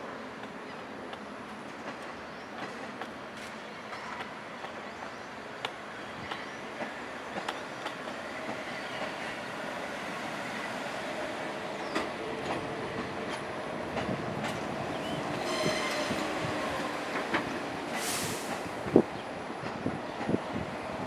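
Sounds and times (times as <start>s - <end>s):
train wheels clicking over rail joints: 11.8s - 20.4s
train brake squeal: 15.0s - 16.6s
short hiss: 18.0s - 18.7s.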